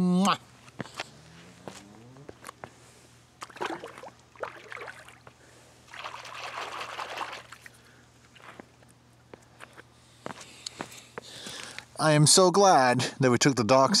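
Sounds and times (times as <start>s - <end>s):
lake water splashing: 3.4s - 8.6s.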